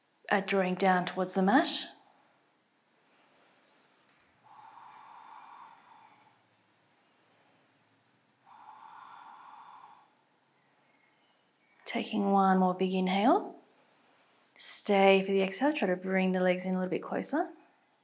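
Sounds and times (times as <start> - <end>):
woman breathing through nose: 3.0 - 11.4.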